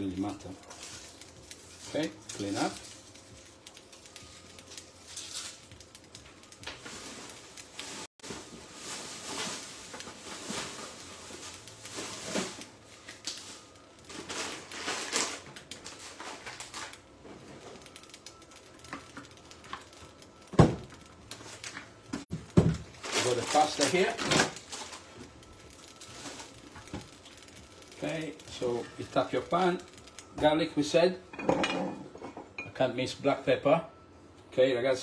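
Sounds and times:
kitchen things clattering: 31.3s - 32.8s.

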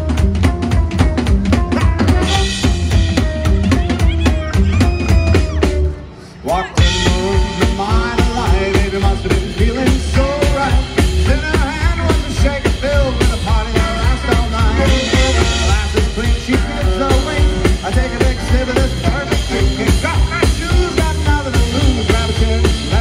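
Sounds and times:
drum kit beat: 0.0s - 23.0s
swing band playing: 0.0s - 23.0s.

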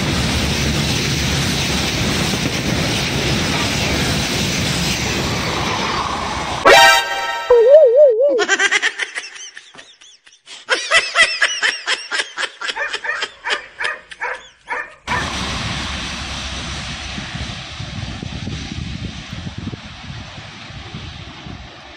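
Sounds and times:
distant train: 0.0s - 7.4s, 15.1s - 21.9s
short warbling tone: 6.6s - 8.5s
giggling laughter: 8.1s - 15.1s
wind rushing: 15.2s - 21.8s.

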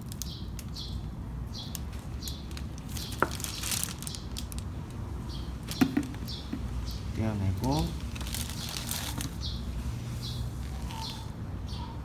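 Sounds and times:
plastic rustling: 1.7s - 5.0s, 7.7s - 9.5s.

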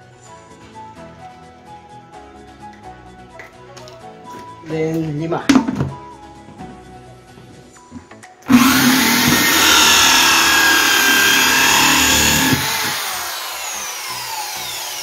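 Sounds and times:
electric drill cutting plastic: 8.5s - 15.0s.

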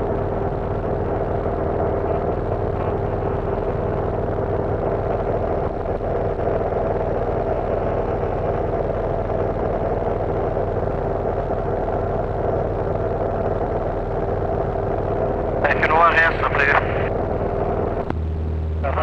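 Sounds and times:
propeller plane engine droning: 0.0s - 19.0s.

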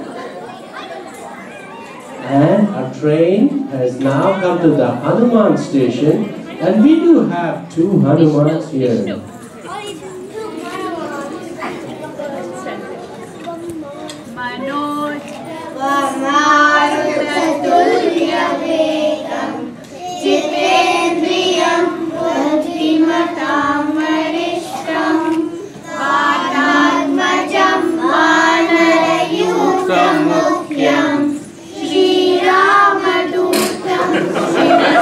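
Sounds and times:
children singing into microphones: 15.2s - 35.0s.

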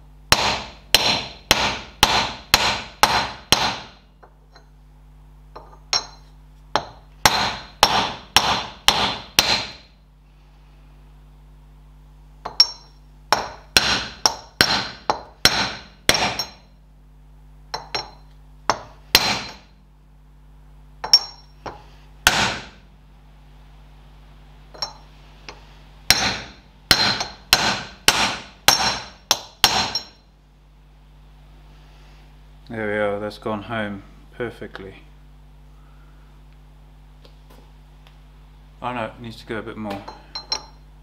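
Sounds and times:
hammer tapping metal drift: 12.5s - 16.7s, 24.8s - 30.2s.

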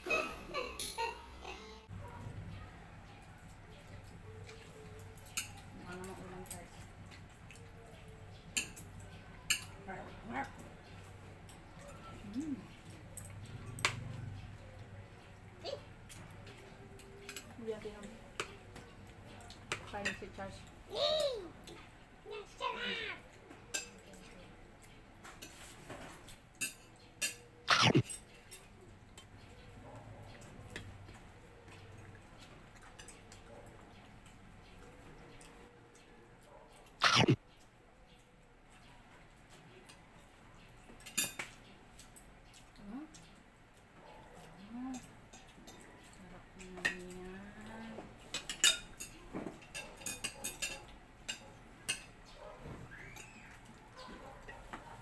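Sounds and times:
utensils clinking on dishes: 3.2s - 21.3s, 23.5s - 29.8s, 30.4s - 36.0s, 40.8s - 43.2s, 44.9s - 47.3s, 47.9s - 52.4s, 53.0s - 54.7s.

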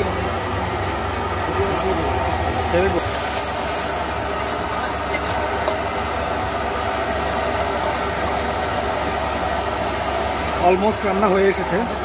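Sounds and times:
low rumbling noise: 0.0s - 7.8s
metal spatula scraping a wok: 3.0s - 5.8s, 7.7s - 8.6s.

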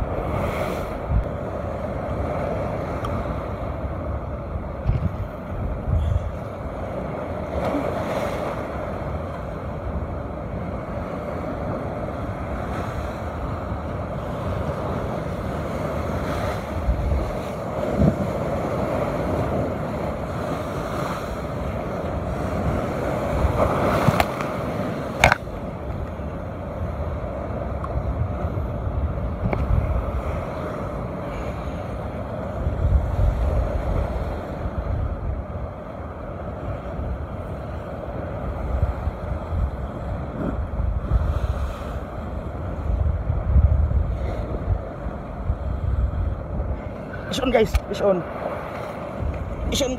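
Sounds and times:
wind buffeting microphone: 0.0s - 49.9s
surf breaking on rocks: 10.6s - 26.2s.

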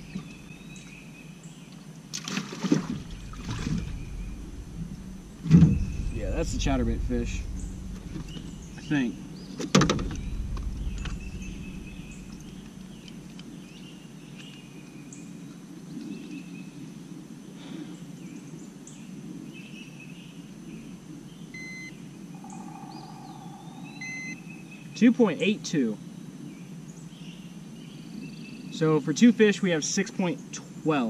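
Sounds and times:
birds chirping and calling: 0.0s - 1.8s, 3.0s - 15.4s, 22.3s - 25.2s
low outdoor background noise: 0.0s - 31.0s.

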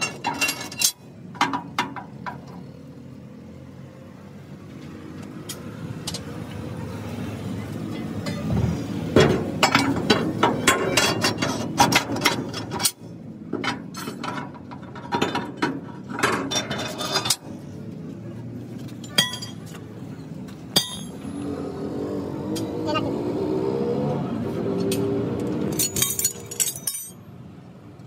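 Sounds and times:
metal leaf springs clinking: 0.0s - 1.0s, 24.8s - 27.2s.

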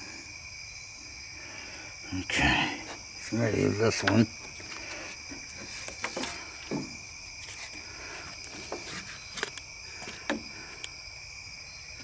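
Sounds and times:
crickets chirping: 0.0s - 12.0s
taps and knocks on wooden planks: 4.0s - 4.6s, 5.3s - 7.0s, 8.5s - 10.9s.

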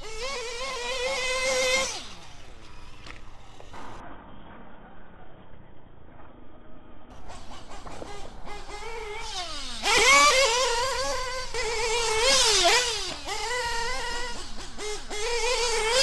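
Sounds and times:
rc buggy engine revving: 0.0s - 3.7s, 7.1s - 16.0s.

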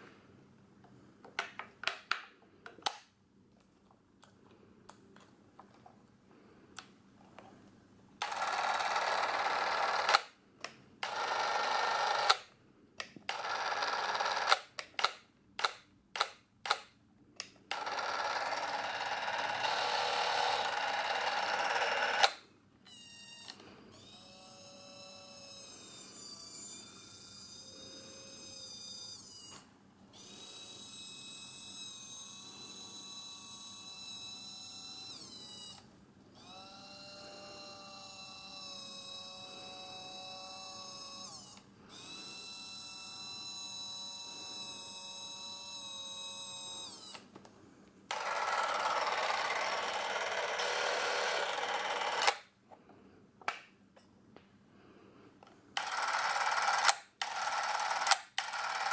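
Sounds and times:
camera motor whirring: 8.2s - 10.4s, 11.0s - 12.5s, 13.3s - 15.1s, 17.7s - 47.4s, 48.1s - 52.5s, 55.8s - 58.9s.

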